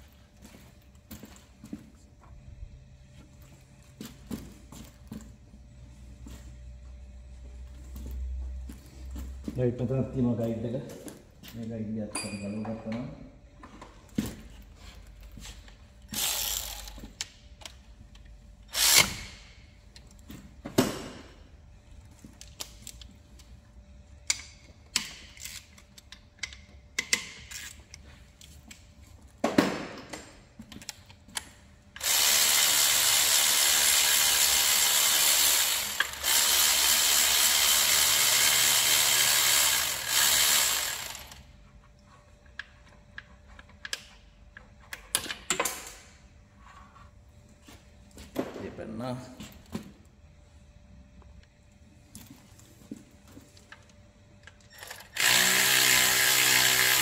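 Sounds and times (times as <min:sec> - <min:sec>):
power drill running: 0:16.1 - 0:17.0, 0:18.7 - 0:19.3, 0:32.0 - 0:41.5, 0:54.8 - 0:57.0.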